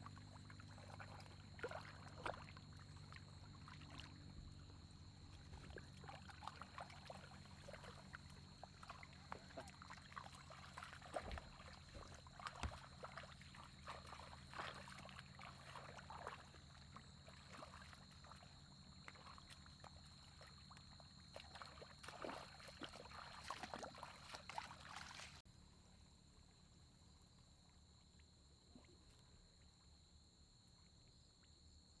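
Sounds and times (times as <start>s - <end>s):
people wading in water: 0.0s - 25.4s.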